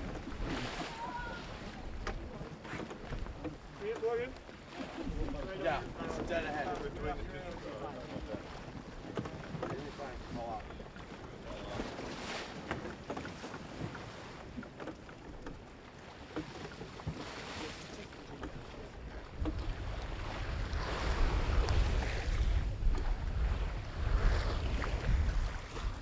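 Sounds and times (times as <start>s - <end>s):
water splashing along hull: 0.0s - 26.0s
wind buffeting microphone: 19.0s - 26.0s.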